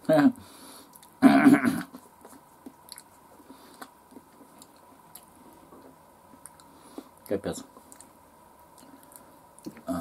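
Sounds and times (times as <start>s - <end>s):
person chewing wetly: 0.9s - 1.2s, 1.9s - 5.3s, 6.3s - 7.1s, 7.8s - 9.9s.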